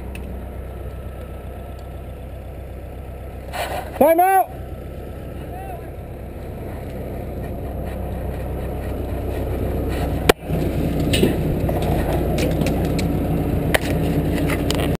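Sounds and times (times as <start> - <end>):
forklift engine running: 0.0 - 15.0
rattles and clicks: 6.5 - 15.0.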